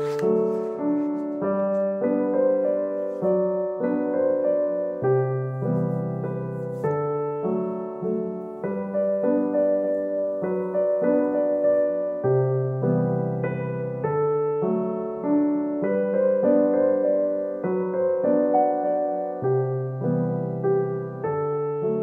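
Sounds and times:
soft piano music: 0.0s - 22.0s.

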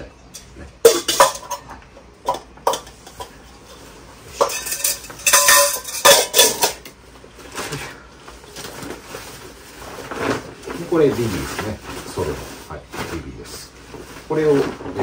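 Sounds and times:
metal pot clanking: 0.3s - 6.9s.

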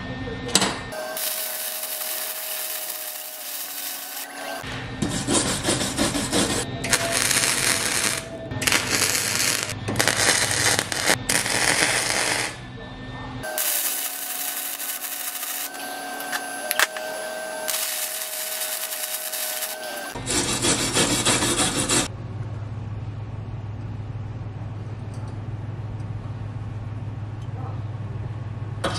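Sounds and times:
steady welding hiss: 1.0s - 4.6s, 6.9s - 12.6s, 13.4s - 20.2s
welder arc crackling: 1.0s - 4.6s, 6.8s - 12.6s, 13.4s - 20.2s
low hum: 5.8s - 20.8s.

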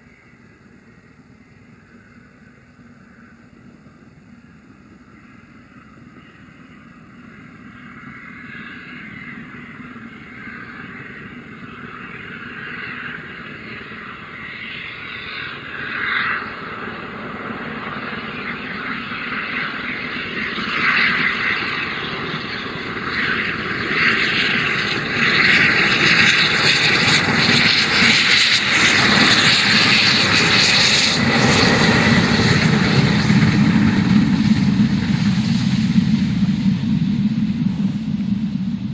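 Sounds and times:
low rumble of passing train: 0.0s - 21.1s, 31.4s - 38.9s
steam locomotive exhaust beat: 35.9s - 38.9s.

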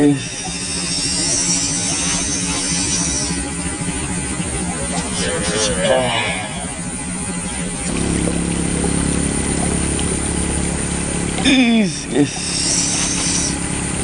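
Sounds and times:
motorcycle engines humming: 0.0s - 14.0s
louder engine note: 3.8s - 11.5s
brief wavering sound: 4.6s - 7.9s.

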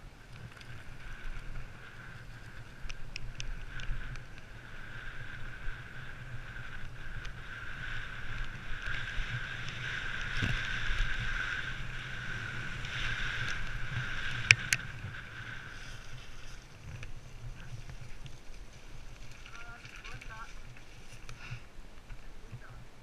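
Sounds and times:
bike clacking over rough ground: 0.0s - 23.0s
constant buzzing tone: 0.0s - 23.0s
wind rushing over microphone: 0.0s - 23.0s
tyres rolling over gravel: 0.2s - 22.7s.

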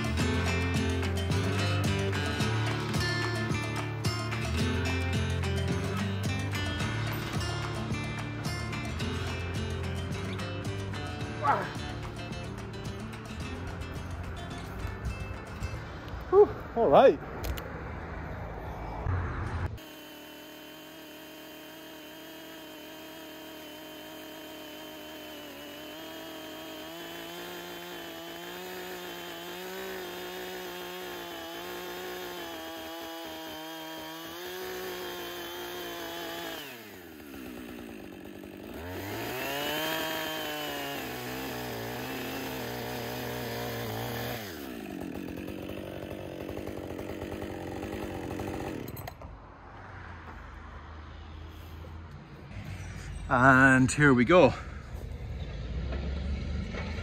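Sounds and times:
chainsaw cutting log: 0.0s - 15.0s, 19.7s - 49.3s.

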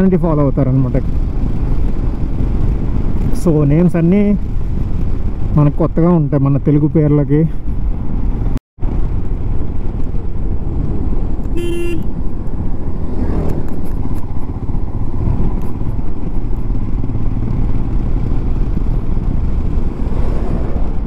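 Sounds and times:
vehicle horn toot: 11.5s - 12.1s.

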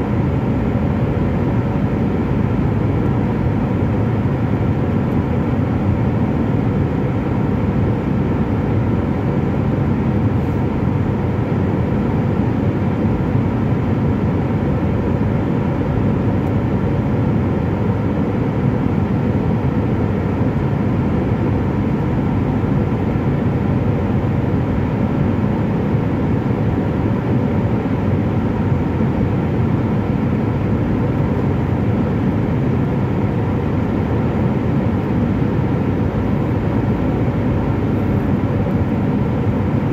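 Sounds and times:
jet engine cabin rumble: 0.0s - 39.9s.

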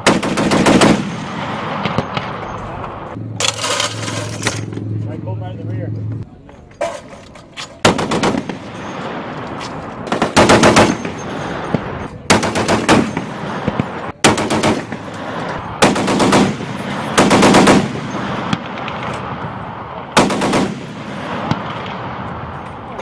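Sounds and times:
gunfire echoing: 0.0s - 2.6s, 7.8s - 9.4s, 10.0s - 22.3s.

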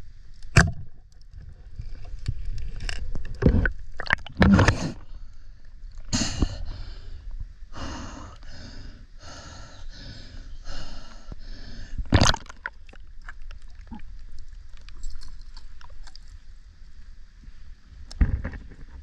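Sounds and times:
faint underwater clicks: 12.2s - 16.5s.

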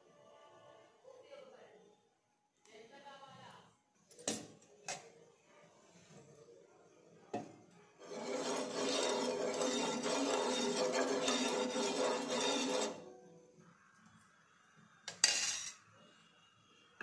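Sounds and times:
ladle rubbing on a pan: 8.0s - 13.0s.

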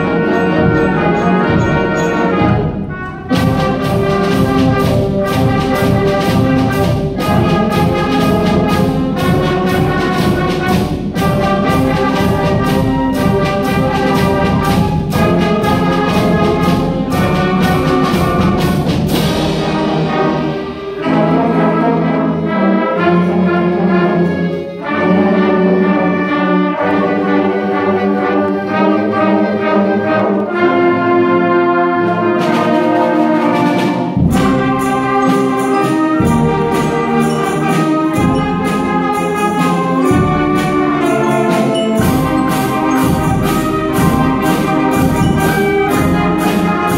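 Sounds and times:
drums striking a steady beat: 0.0s - 21.0s, 32.4s - 46.9s
concert band playing: 0.0s - 46.9s.

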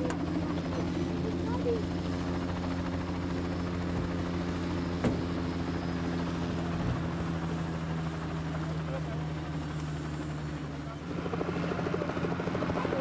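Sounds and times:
helicopter hovering drone: 0.0s - 13.0s.

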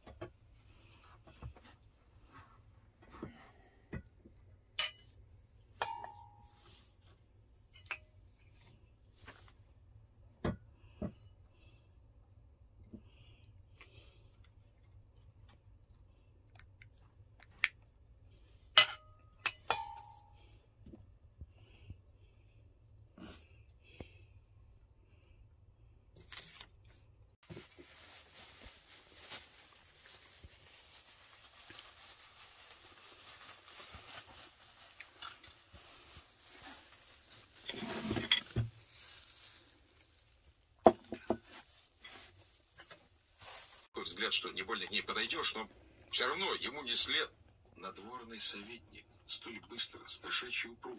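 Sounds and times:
crackling and rustling: 26.2s - 44.0s.

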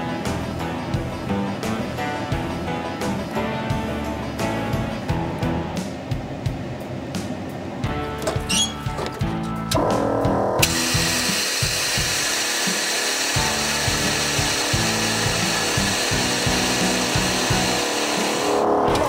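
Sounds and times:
background music: 0.0s - 19.0s
electric motor running: 10.6s - 18.8s.

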